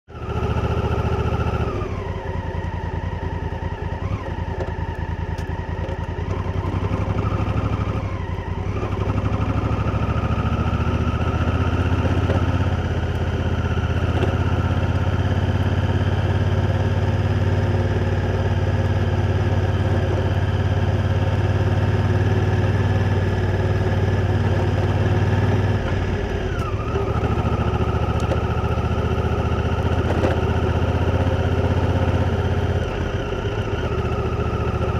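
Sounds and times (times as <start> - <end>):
motorcycle engine running: 0.1 - 34.9.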